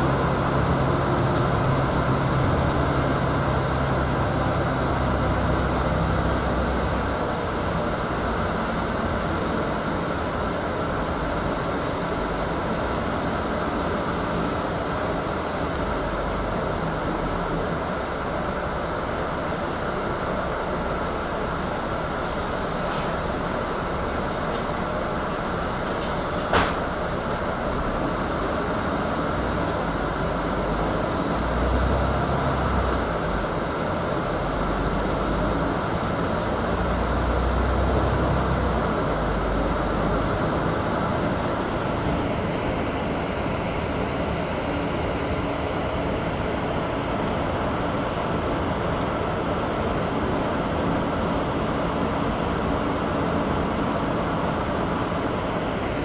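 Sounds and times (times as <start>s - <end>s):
bus engine running: 0.0s - 56.0s
air hiss: 21.6s - 27.0s.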